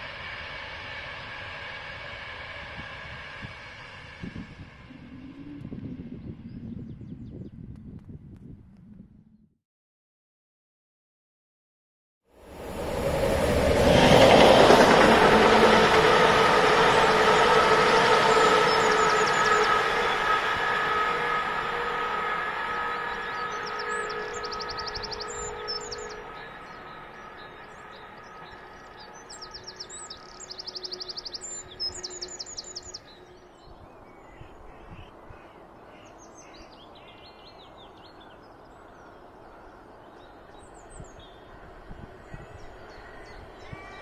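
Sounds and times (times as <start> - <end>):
diesel locomotive hum: 0.0 - 9.3, 12.4 - 44.0
songbirds trilling: 22.8 - 44.0.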